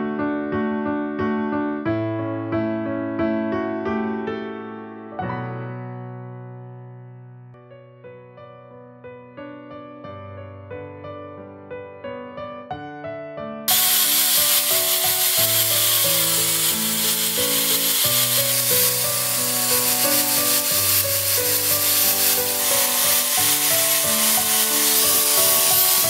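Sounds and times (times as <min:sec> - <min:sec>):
angle grinder sanding wood: 0:13.7 - 0:26.0.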